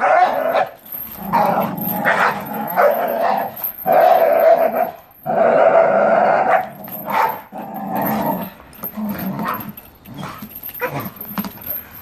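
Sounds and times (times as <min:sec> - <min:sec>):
dogs growling: 0:00.0 - 0:11.6.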